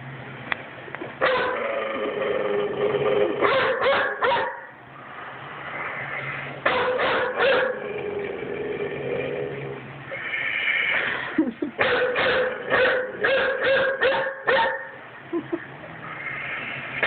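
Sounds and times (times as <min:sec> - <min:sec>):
dog barking: 0:01.2 - 0:01.6, 0:03.4 - 0:04.8, 0:06.6 - 0:07.8, 0:11.8 - 0:15.0.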